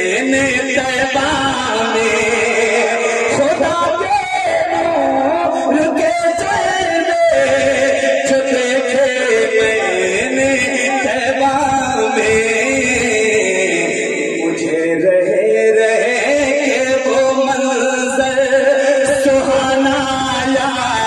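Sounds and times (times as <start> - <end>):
layered backing voices: 0.0 - 21.0
man singing melodic lines: 0.0 - 21.0.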